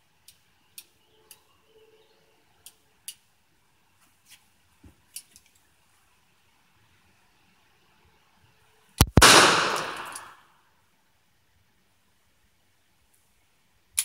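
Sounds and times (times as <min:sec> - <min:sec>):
revolver metallic clicks: 0:09.0 - 0:10.3.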